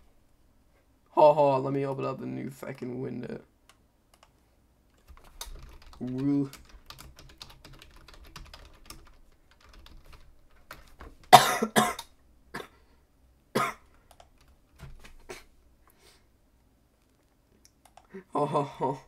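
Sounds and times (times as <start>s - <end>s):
keyboard typing and clicking: 4.1s - 4.4s, 5.0s - 11.3s, 14.1s - 15.1s, 17.7s - 18.1s
person coughing: 11.3s - 12.8s, 13.6s - 13.8s.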